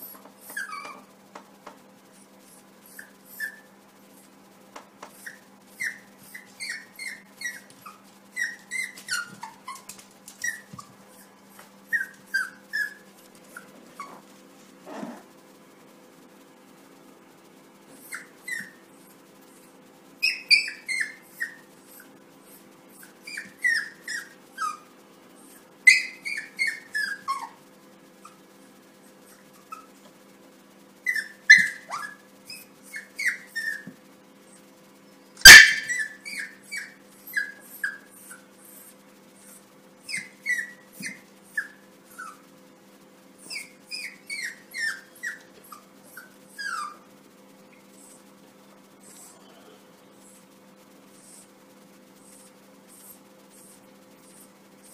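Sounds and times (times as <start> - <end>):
puppy yipping and whining: 0.0 - 1.1, 2.2 - 3.7, 5.1 - 14.3, 17.9 - 18.8, 20.2 - 27.6, 28.2 - 28.4, 29.1 - 30.0, 31.0 - 34.6, 35.4 - 42.5, 43.4 - 47.1, 51.2 - 51.5, 52.2 - 54.9
puppy sharp yap: 35.4 - 38.0.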